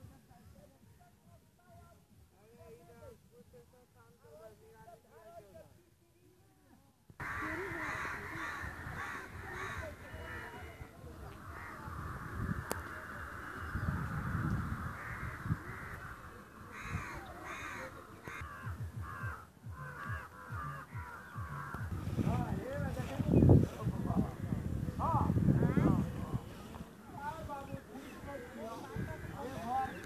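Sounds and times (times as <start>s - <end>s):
birds harsh calls: 7.2s - 30.0s.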